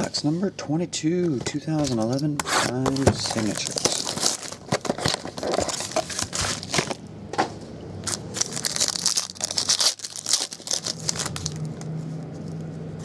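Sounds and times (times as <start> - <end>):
plastic wrapper crinkling: 2.8 - 7.0, 8.0 - 12.0.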